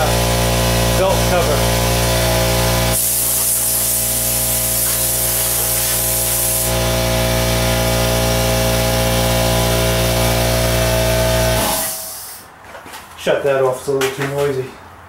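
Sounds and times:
air compressor humming: 0:00.0 - 0:12.5
blow gun hissing air: 0:02.0 - 0:06.9, 0:11.6 - 0:12.4.

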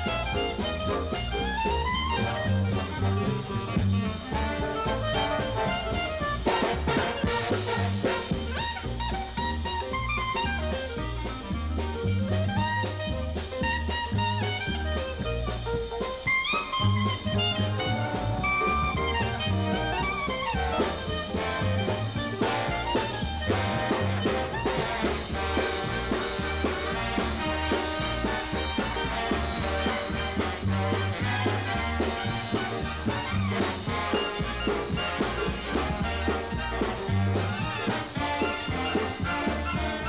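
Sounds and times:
trumpets and trombone playing: 0:00.0 - 0:11.0, 0:16.2 - 0:40.0
clarinet solo: 0:00.0 - 0:15.6, 0:16.2 - 0:40.0
drums: 0:00.0 - 0:40.0
stepping bass line: 0:00.0 - 0:40.0.

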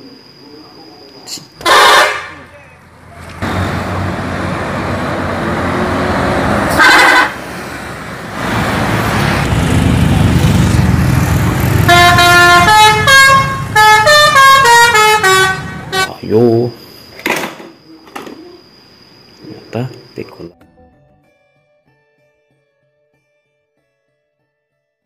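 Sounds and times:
musical bus horn tune: 0:01.6 - 0:02.5, 0:06.6 - 0:07.5, 0:11.6 - 0:16.2
short horn blast: 0:01.6 - 0:02.5, 0:06.7 - 0:07.5, 0:11.6 - 0:16.2
bus engine running: 0:01.6 - 0:16.2.

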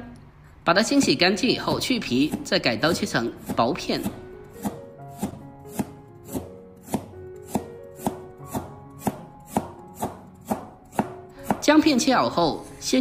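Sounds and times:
cleaver chopping on wooden board: 0:02.3 - 0:11.6.

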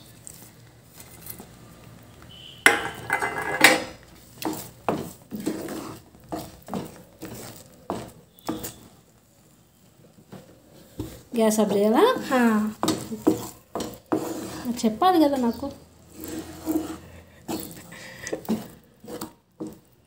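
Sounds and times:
utensils clattering: 0:02.7 - 0:03.9
spatula scraping a pan: 0:02.7 - 0:09.0, 0:10.1 - 0:20.0.

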